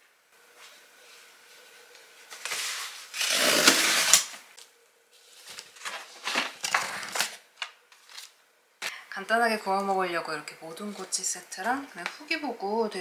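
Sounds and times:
cardboard box ripping open: 0:03.2 - 0:04.4
plastic packaging rustling: 0:05.2 - 0:08.4.

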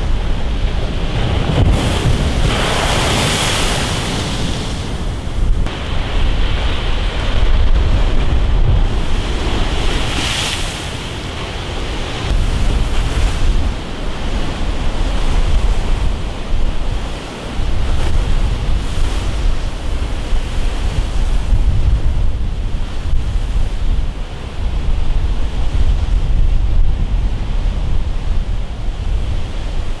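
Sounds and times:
sea surf breaking: 0:00.0 - 0:21.7
wind buffeting microphone: 0:00.0 - 0:30.0.

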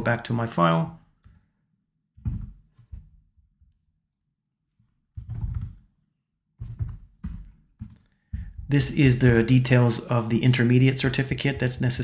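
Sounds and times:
typing on computer keyboard: 0:05.2 - 0:05.9, 0:06.6 - 0:08.1.

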